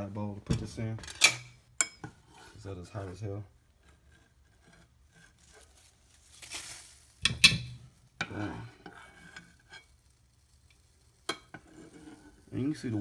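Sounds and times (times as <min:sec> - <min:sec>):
metal utensil clanking on saucepan: 0:07.2 - 0:09.9, 0:11.2 - 0:12.2.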